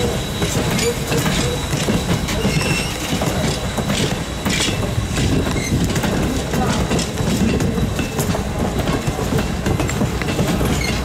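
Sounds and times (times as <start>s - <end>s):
thin wheel squeals: 0.0s - 4.8s, 10.7s - 11.0s
train wheels rumbling on rails: 0.0s - 11.0s
clanks and knocks: 0.4s - 11.0s.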